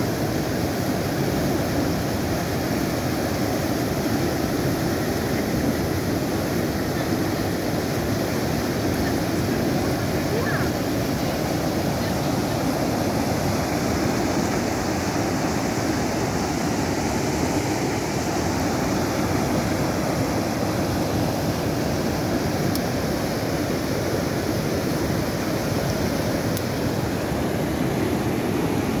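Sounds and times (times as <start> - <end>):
water rushing over rocks: 0.0 - 29.0.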